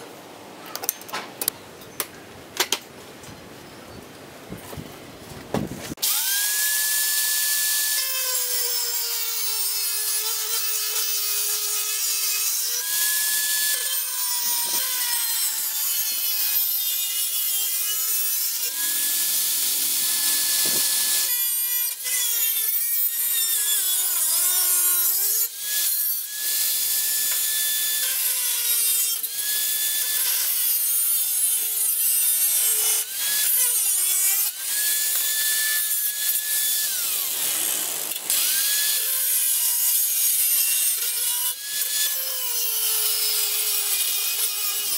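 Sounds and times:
angle grinder cutting steel: 5.9 - 44.9
hiss of cutting: 18.8 - 21.5.

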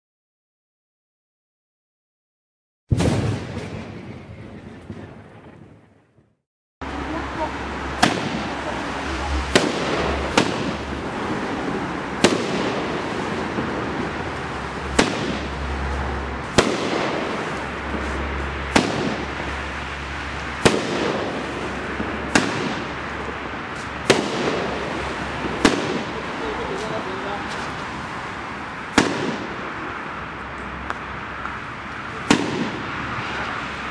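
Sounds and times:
firework bangs: 2.9 - 6.0, 7.0 - 33.9
firework hiss: 7.8 - 30.3.

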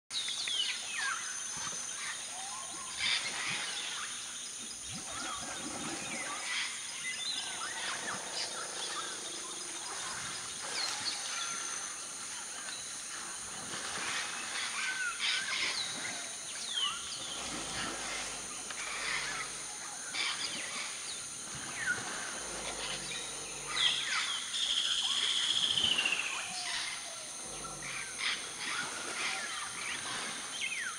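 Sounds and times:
steady high drone: 16.9 - 30.7.

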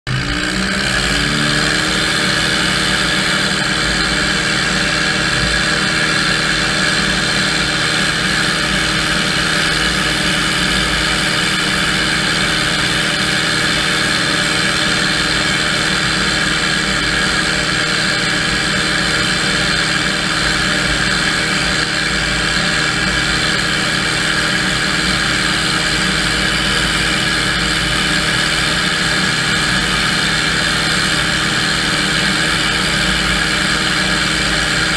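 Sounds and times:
tractor and sprayer fan droning: 0.1 - 34.9.

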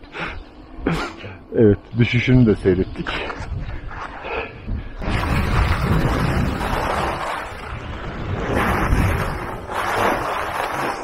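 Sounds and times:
wind rushing over microphone: 3.3 - 11.0.

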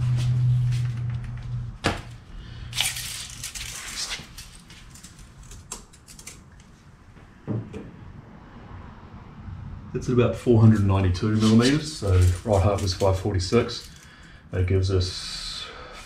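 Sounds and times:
steady low hum: 0.0 - 16.0
tape measure rasping rattle: 2.7 - 6.6, 11.4 - 14.1.

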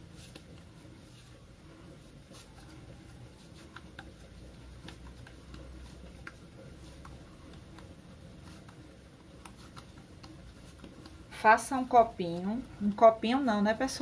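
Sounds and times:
hands rolling dough: 0.0 - 14.0.

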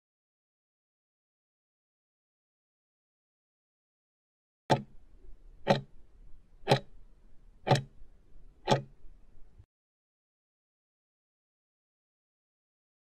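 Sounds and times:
clock-like timer ticks: 4.7 - 5.0, 5.6 - 6.0, 6.6 - 7.0, 7.6 - 8.0, 8.6 - 9.0.

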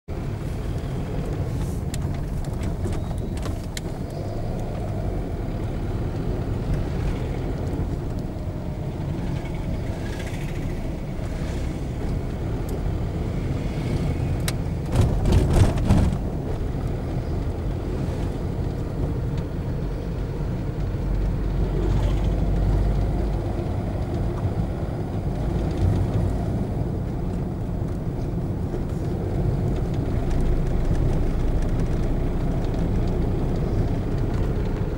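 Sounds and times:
car engine and tyres rumbling: 0.1 - 34.9
knocks and rattles: 14.8 - 16.3.

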